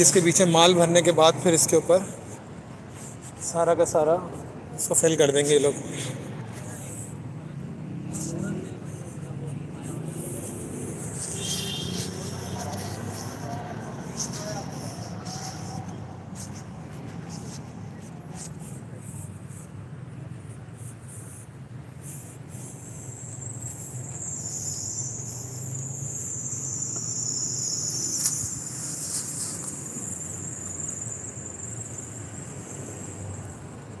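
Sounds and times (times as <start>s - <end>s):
distant road traffic rumble: 0.0s - 34.0s
insects chirring: 22.1s - 34.0s.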